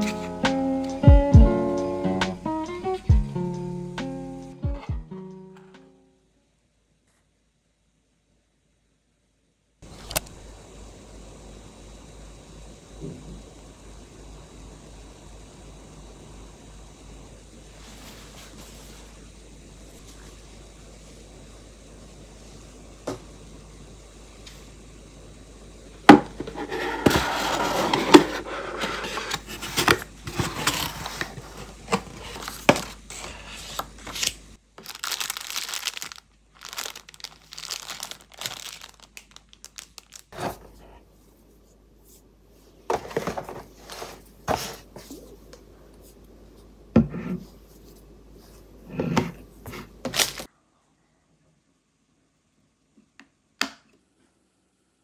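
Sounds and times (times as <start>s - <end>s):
plastic wrapping crinkling and tearing: 32.0s - 40.4s, 50.1s - 50.5s.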